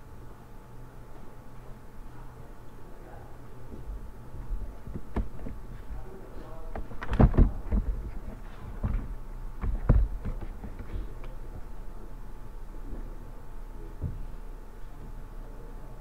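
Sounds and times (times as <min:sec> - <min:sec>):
sharp knocks and thumps: 0:04.8 - 0:05.9, 0:06.7 - 0:11.7, 0:14.0 - 0:14.3.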